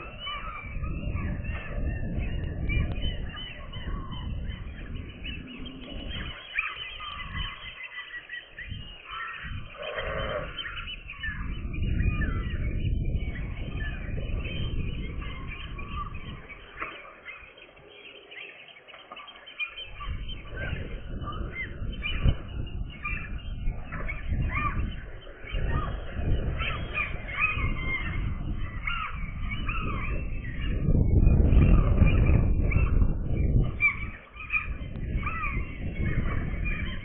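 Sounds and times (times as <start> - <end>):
gulls calling: 0.0 - 37.0.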